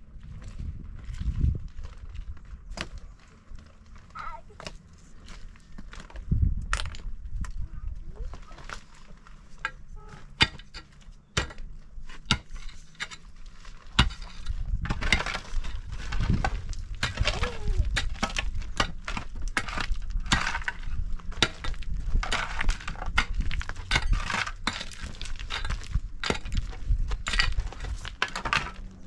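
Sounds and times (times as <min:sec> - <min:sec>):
shovel scraping gravel: 0:08.3 - 0:29.0
pick striking stone: 0:09.6 - 0:13.2.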